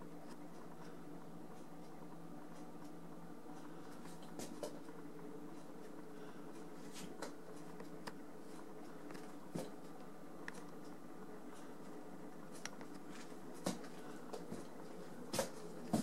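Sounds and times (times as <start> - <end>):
faint clicks and taps: 6.6 - 16.0.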